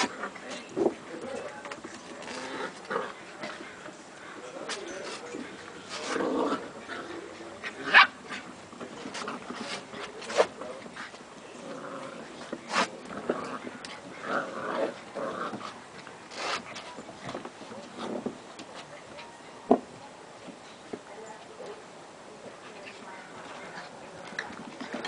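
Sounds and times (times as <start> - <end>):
puppies growling: 2.0 - 4.4, 5.2 - 8.5, 10.9 - 16.6.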